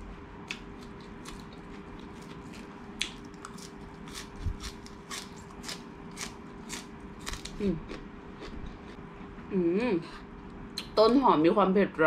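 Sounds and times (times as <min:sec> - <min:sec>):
crisp chewing crunches: 0:00.5 - 0:09.0.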